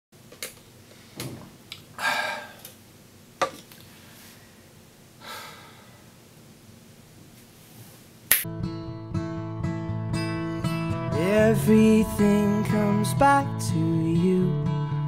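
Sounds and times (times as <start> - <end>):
loud breaths: 2.0 - 2.7, 5.2 - 6.1.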